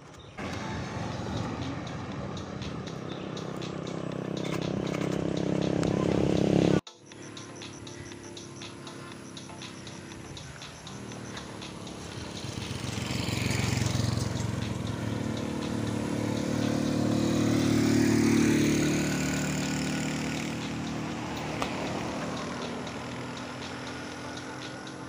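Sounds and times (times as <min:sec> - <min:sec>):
vehicles passing: 0:00.0 - 0:25.0
bicycle freewheel ticking: 0:06.9 - 0:25.0.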